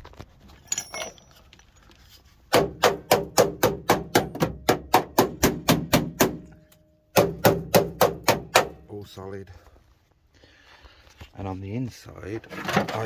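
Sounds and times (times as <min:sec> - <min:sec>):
rapid knocking on steel: 0:02.6 - 0:06.4.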